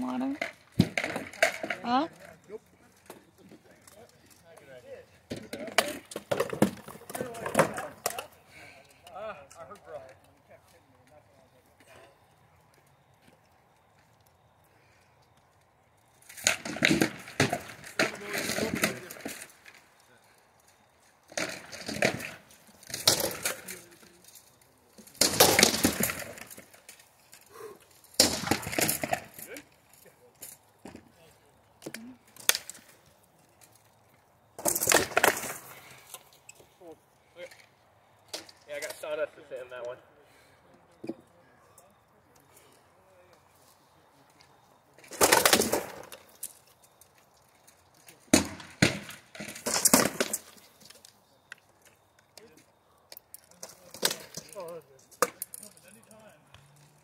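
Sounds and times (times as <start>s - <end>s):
clatter of mail and plate: 5.3s - 8.3s, 16.3s - 19.9s, 21.3s - 31.0s, 34.6s - 36.3s, 45.0s - 46.7s, 48.2s - 51.2s, 53.3s - 56.2s.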